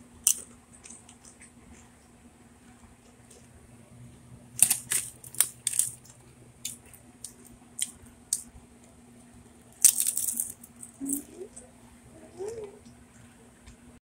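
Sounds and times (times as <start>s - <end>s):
chip crunching: 0.2s - 1.9s, 4.6s - 8.5s, 9.7s - 11.6s
chip bag crinkling: 4.6s - 8.0s, 9.8s - 11.3s.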